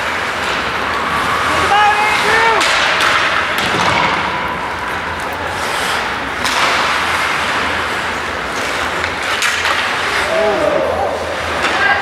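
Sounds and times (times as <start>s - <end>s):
hockey sticks and puck clacking: 0.0s - 12.0s
skates scraping on ice: 0.0s - 12.0s.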